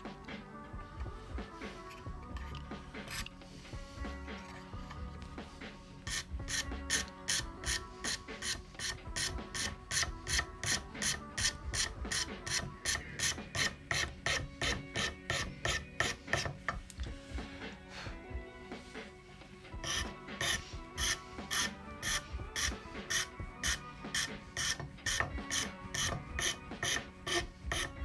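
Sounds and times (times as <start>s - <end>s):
file rasping on wood: 6.0s - 16.8s, 19.8s - 28.0s.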